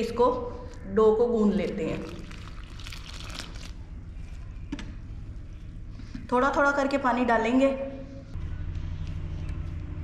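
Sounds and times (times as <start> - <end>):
low machine hum: 7.0 - 10.0.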